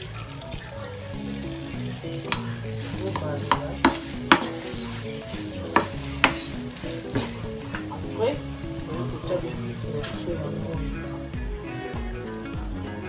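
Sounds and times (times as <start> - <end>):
fish sizzling in hot oil: 0.0 - 11.9
spatula scraping a pan: 1.6 - 8.3.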